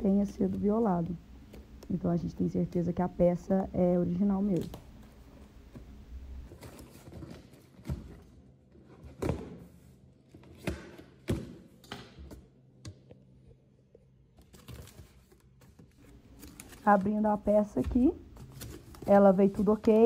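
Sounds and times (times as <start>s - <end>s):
cardboard rustling: 4.6s - 9.6s, 14.4s - 20.0s.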